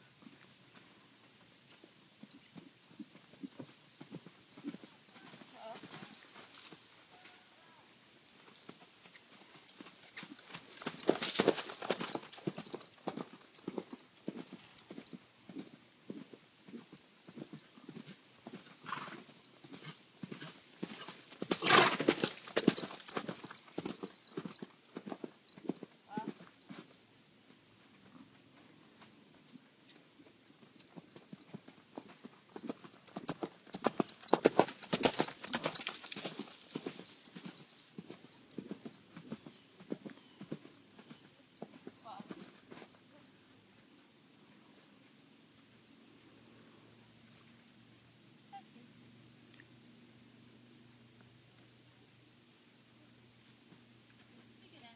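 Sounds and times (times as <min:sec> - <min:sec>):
horse hoofbeats: 0:00.1 - 0:43.9.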